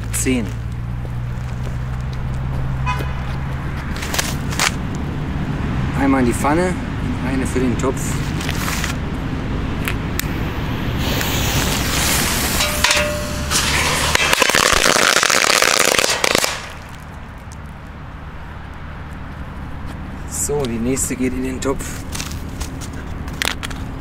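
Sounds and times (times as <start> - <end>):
firecrackers crackling in metal pan: 11.0 - 17.7.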